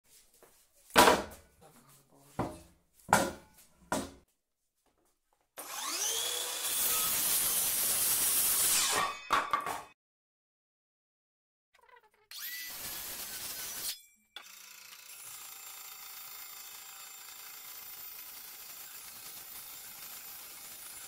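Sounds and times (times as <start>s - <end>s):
sharp wooden knocks: 2.4s - 4.2s
saw blade cutting wood: 5.6s - 9.8s, 12.3s - 21.0s.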